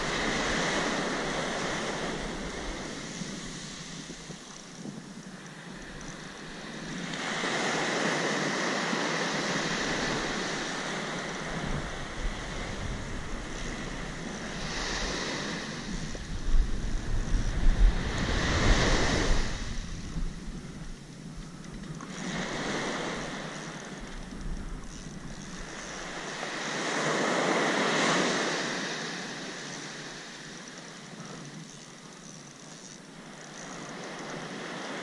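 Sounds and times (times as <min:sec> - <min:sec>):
wind buffeting microphone: 0:00.0 - 0:28.9
surf breaking on beach: 0:06.8 - 0:20.4, 0:22.1 - 0:30.6.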